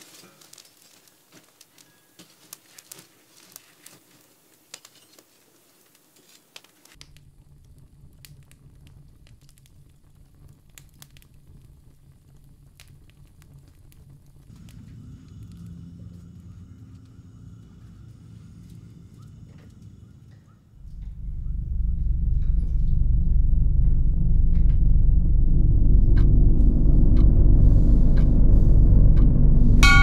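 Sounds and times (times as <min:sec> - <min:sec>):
wood fire crackling: 0:00.0 - 0:30.0
low steady rumble: 0:07.0 - 0:30.0.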